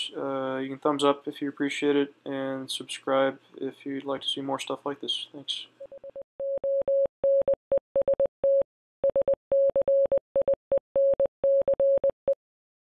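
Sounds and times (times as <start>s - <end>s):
morse code beeps: 5.8s - 12.4s.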